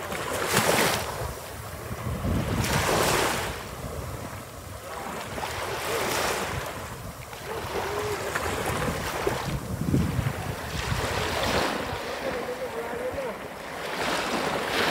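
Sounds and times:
small waves washing on shore: 0:00.0 - 0:14.9
wind rumbling on microphone: 0:00.0 - 0:14.9.

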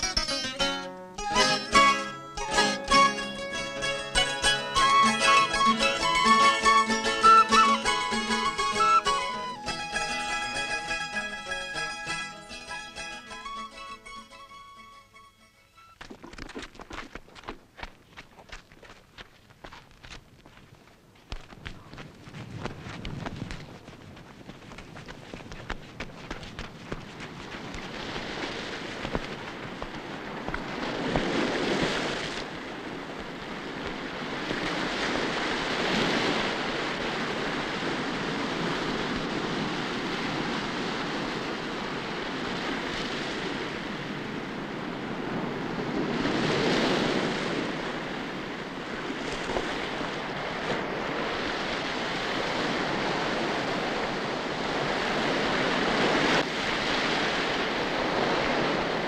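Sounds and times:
wind: 0:00.0 - 0:59.0
surf breaking on beach: 0:21.9 - 0:59.0.

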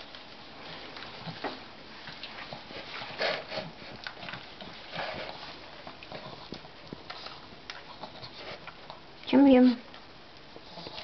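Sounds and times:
dog chewing and tearing meat: 0:00.9 - 0:09.2.

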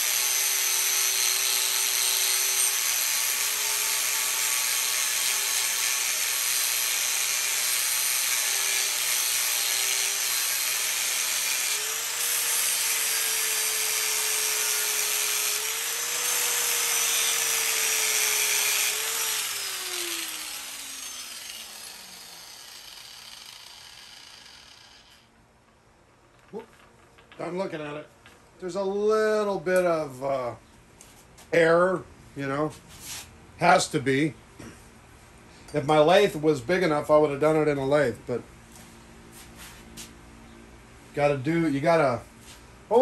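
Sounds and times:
angle grinder grinding metal: 0:00.0 - 0:25.3.

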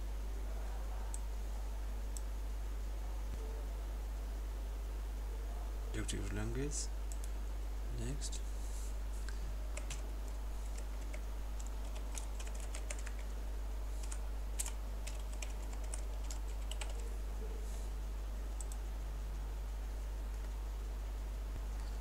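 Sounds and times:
low steady hum: 0:00.0 - 0:22.0
computer keyboard typing: 0:09.8 - 0:13.4, 0:14.0 - 0:17.1, 0:18.5 - 0:18.8.

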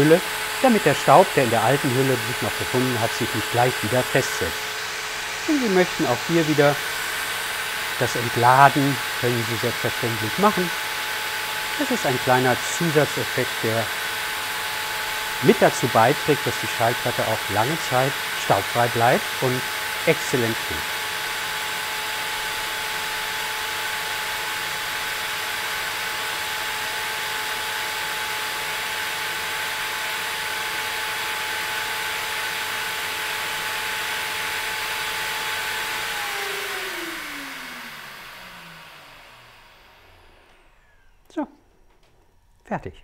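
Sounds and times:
vacuum suction air rush: 0:00.0 - 0:23.6
motor spinning down: 0:00.0 - 0:42.6.

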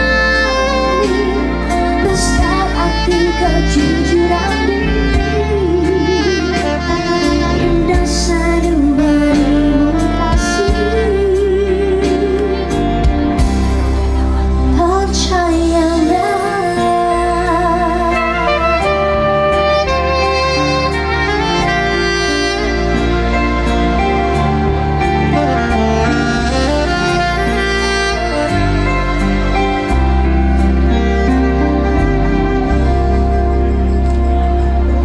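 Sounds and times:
woman singing: 0:00.0 - 0:13.0, 0:14.7 - 0:20.1
live band playing: 0:00.0 - 0:35.0.

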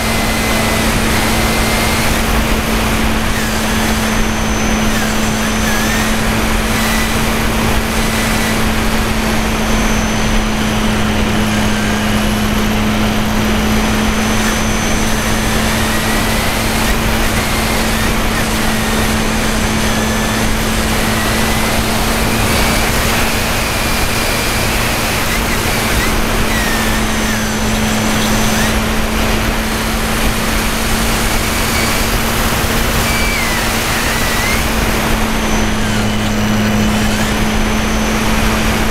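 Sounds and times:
model airplane motor running: 0:00.0 - 0:38.9
wind over microphone: 0:00.0 - 0:38.9.

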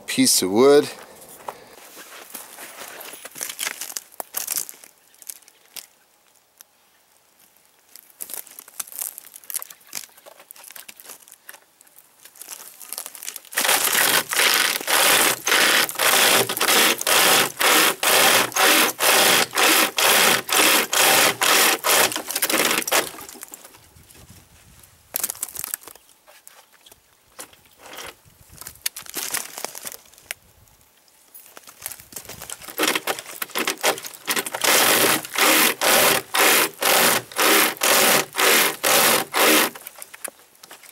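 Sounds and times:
chain saw rasping through branch: 0:13.5 - 0:23.5, 0:32.5 - 0:40.1.

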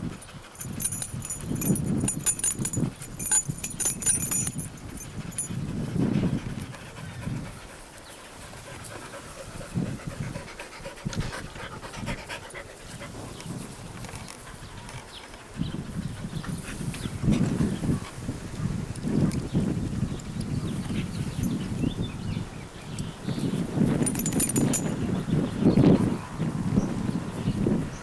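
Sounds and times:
dog panting: 0:00.0 - 0:18.1.

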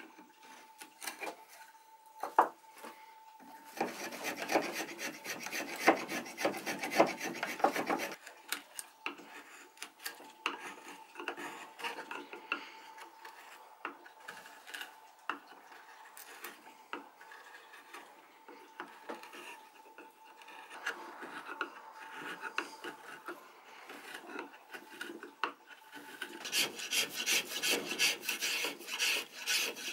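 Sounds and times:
spokeshave rasping on wood: 0:03.7 - 0:08.2, 0:09.1 - 0:29.9
chisel slicing wood: 0:03.8 - 0:08.2, 0:25.9 - 0:29.9.

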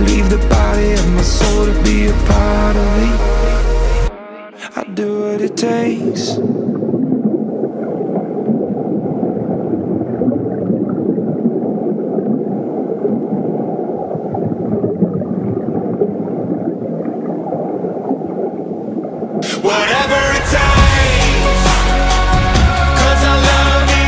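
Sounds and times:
muffled low rushing noise: 0:19.9 - 0:24.0.

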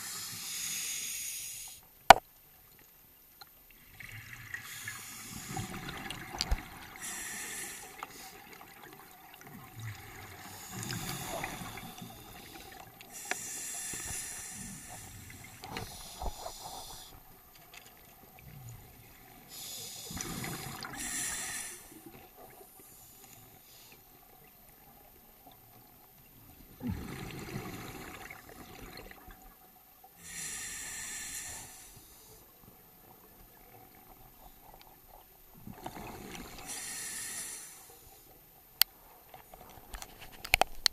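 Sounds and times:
regulator inhalation hiss: 0:00.0 - 0:01.8, 0:04.6 - 0:05.9, 0:07.0 - 0:08.5, 0:10.4 - 0:17.2, 0:19.5 - 0:22.1, 0:30.2 - 0:32.4, 0:36.7 - 0:38.2.

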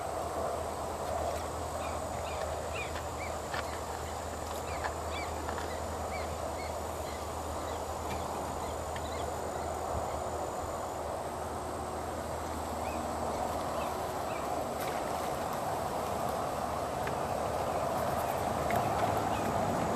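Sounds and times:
faint chirps of small birds: 0:01.3 - 0:10.5, 0:12.4 - 0:14.6.

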